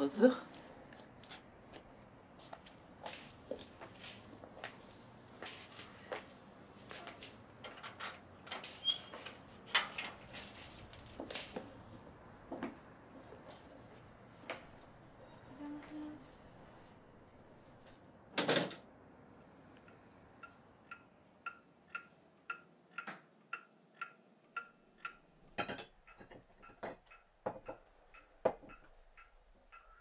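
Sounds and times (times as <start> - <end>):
pendulum wall clock ticking: 19.9 - 30.0.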